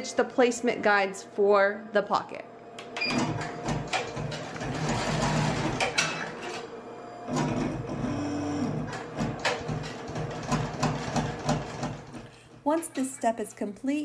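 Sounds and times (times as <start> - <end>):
embroidery machine stitching: 3.1 - 6.6, 7.3 - 12.3.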